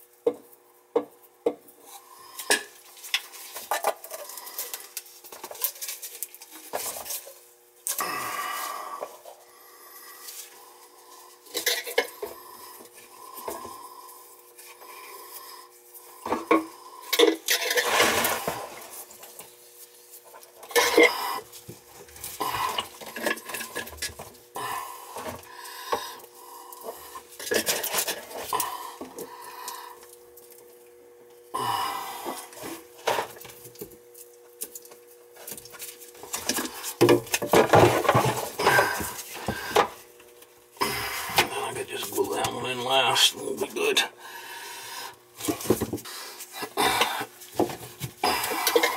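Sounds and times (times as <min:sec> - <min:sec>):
cans clinking and clicking: 0:48.3 - 0:48.9.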